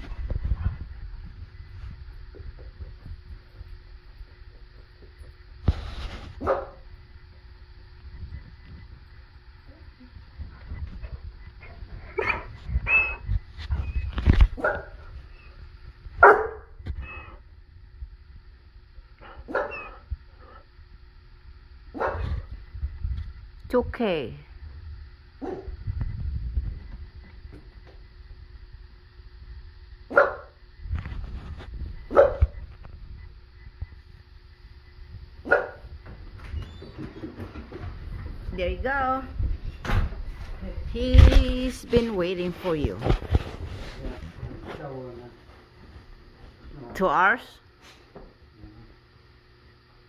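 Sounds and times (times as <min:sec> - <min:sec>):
dog barking: 0:06.4 - 0:06.8, 0:14.6 - 0:15.0, 0:16.2 - 0:16.7, 0:19.5 - 0:19.9, 0:21.9 - 0:22.4, 0:25.4 - 0:25.7, 0:30.1 - 0:30.6, 0:32.1 - 0:32.5, 0:35.4 - 0:35.8
dog whining: 0:12.2 - 0:14.1, 0:17.0 - 0:17.4, 0:19.5 - 0:20.0.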